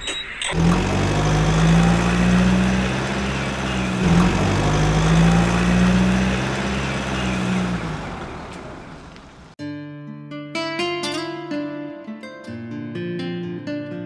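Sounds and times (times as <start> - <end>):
truck engine droning: 0.0 - 9.6.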